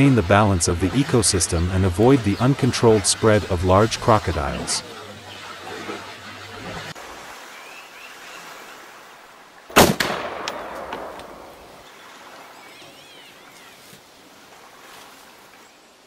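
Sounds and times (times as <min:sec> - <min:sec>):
rifle shot with echo: 0:09.7 - 0:11.8.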